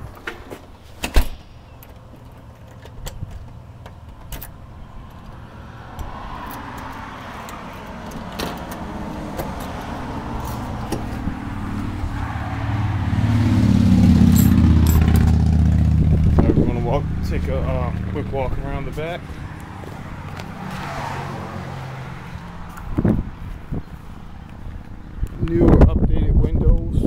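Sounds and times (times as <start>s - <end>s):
car passing by: 5.4s - 16.3s, 16.9s - 24.6s.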